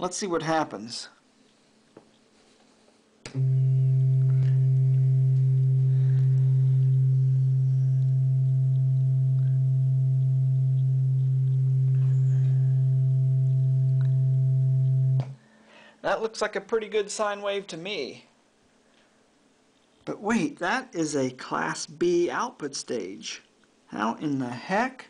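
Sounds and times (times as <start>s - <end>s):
amplifier click: 3.2s - 15.4s
low sine-wave test tone: 3.2s - 15.6s.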